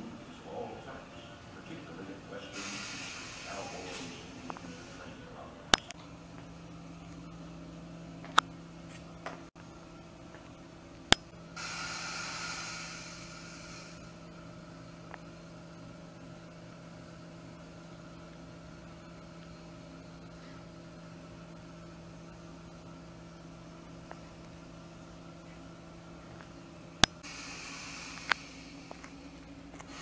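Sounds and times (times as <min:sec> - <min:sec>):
low electrical hum: 0:00.0 - 0:30.0
burst of hiss: 0:02.5 - 0:04.8, 0:11.6 - 0:14.1, 0:27.2 - 0:28.9.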